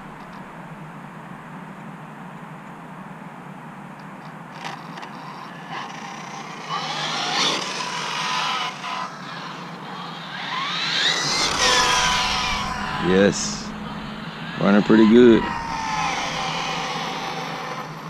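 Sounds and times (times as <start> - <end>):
electric motor high whine: 5.0 - 18.0.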